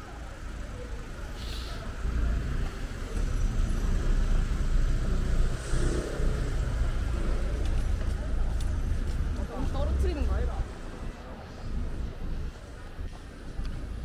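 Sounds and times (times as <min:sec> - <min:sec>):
car engine rumble: 0:00.0 - 0:14.0
city street noise: 0:00.0 - 0:14.0.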